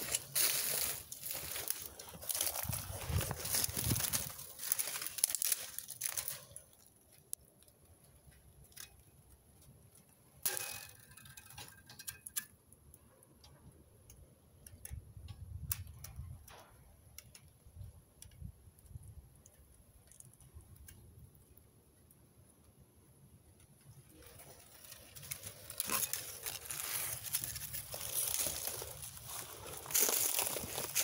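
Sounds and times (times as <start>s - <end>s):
footsteps: 0.0s - 6.6s, 24.2s - 31.0s
loud crackle: 0.0s - 6.8s
rustling and crunching: 0.0s - 12.4s, 23.6s - 31.0s
light clicks and taps: 13.4s - 21.6s.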